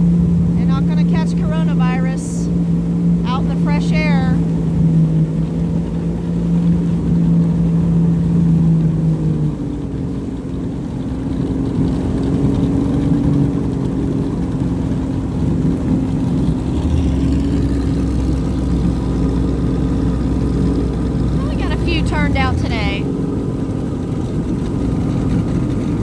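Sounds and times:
jet ski engine running: 0:00.0 - 0:26.0
deep low rumble: 0:16.3 - 0:26.0.

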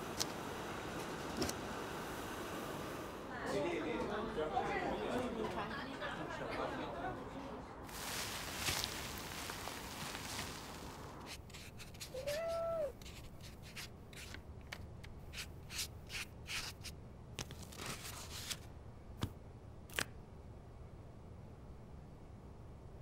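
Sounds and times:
brush scratching on paper: 0:11.2 - 0:14.4
cat meow: 0:12.1 - 0:13.0.

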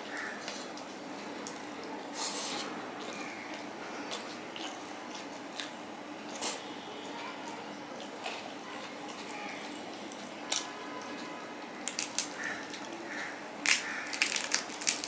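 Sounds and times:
fingers squishing sticky rice: 0:11.8 - 0:15.0.

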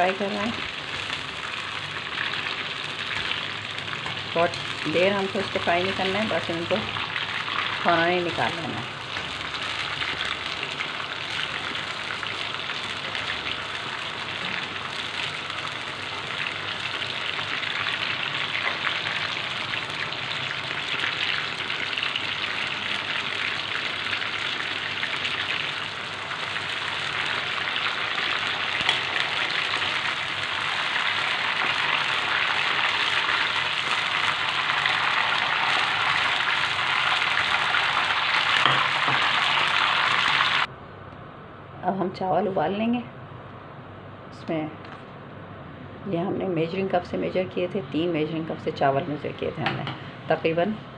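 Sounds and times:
chicken deep-frying in oil: 0:00.0 - 0:40.7.

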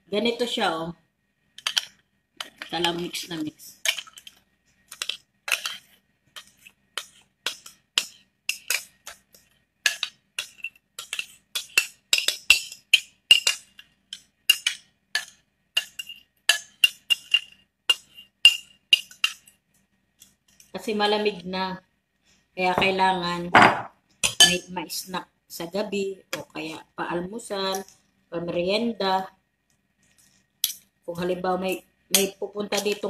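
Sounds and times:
metal spoon scraping a bowl: 0:03.8 - 0:19.5.

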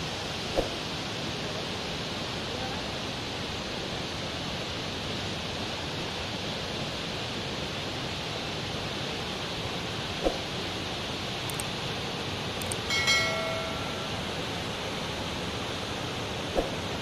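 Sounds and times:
waterfall rushing over rocks: 0:00.0 - 0:17.0.

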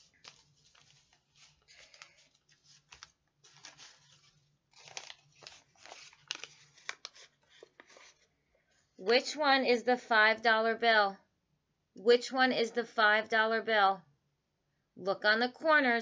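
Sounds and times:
paper bills rustling and crinkling: 0:00.0 - 0:08.3.

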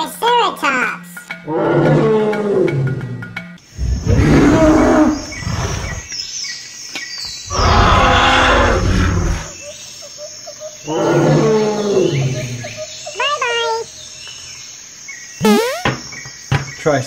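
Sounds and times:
dinosaur roars: 0:01.5 - 0:03.1, 0:03.8 - 0:06.0, 0:07.5 - 0:09.6.

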